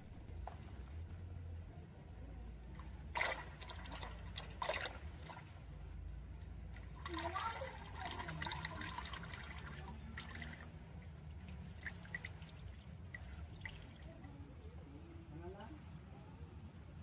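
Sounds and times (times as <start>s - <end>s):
oil trickling into metal basin: 3.0s - 5.6s, 6.7s - 14.3s.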